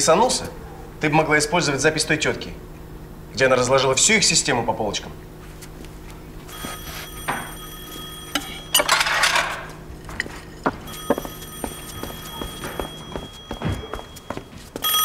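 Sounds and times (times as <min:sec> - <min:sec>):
telephone bell ringing: 0:06.5 - 0:09.8, 0:10.8 - 0:15.0.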